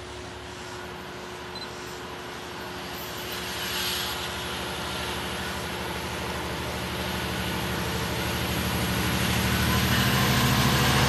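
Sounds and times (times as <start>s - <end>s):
diesel locomotive engine drone: 0.0s - 11.0s.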